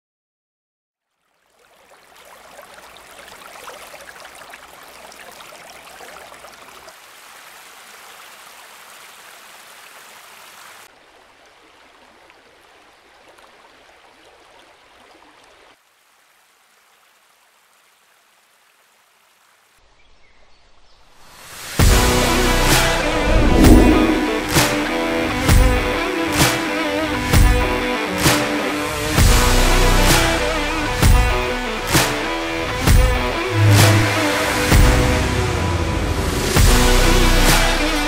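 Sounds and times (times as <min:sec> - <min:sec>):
stream rushing over rocks: 0:01.4 - 0:19.8.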